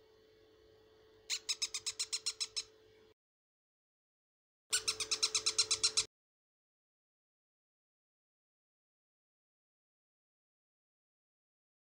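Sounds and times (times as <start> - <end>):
faint steady hum: 0.0 - 3.2
parrot chicks peeping: 1.3 - 2.8, 4.7 - 6.1.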